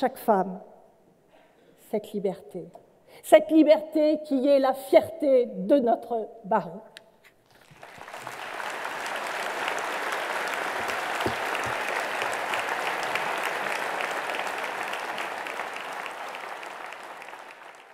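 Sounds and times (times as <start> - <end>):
audience applauding: 7.6 - 17.9.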